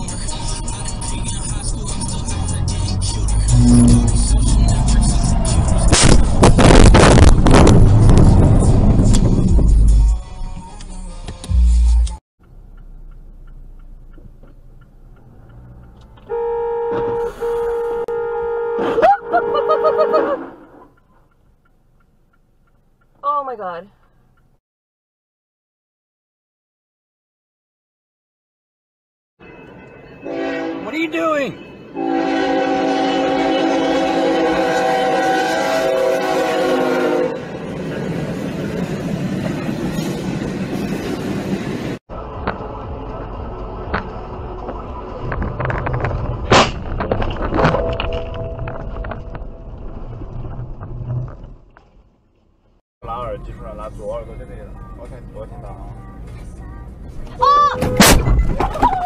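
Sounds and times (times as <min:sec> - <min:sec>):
freight train rumbling past: 0:01.7 - 0:10.1, 0:29.4 - 0:47.0
car horn held: 0:03.5 - 0:04.3, 0:16.3 - 0:20.8
higher car horn toots: 0:03.5 - 0:04.3, 0:16.3 - 0:20.6, 0:30.2 - 0:31.1, 0:32.0 - 0:37.4
cars crashing: 0:57.7 - 0:59.0.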